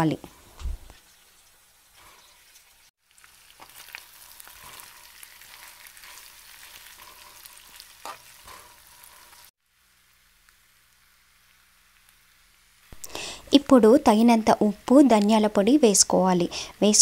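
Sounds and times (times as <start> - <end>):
potatoes sizzling in oil: 1.0 - 17.0
spatula scraping a pan: 3.6 - 9.5.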